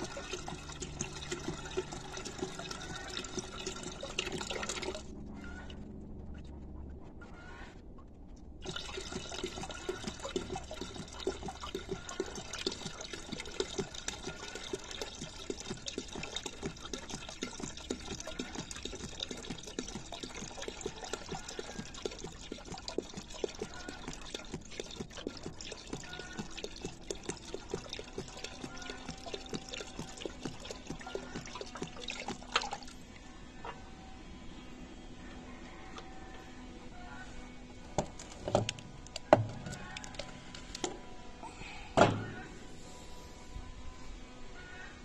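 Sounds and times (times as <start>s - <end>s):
oil splashing into a pail: 0.0s - 5.1s, 8.6s - 33.1s.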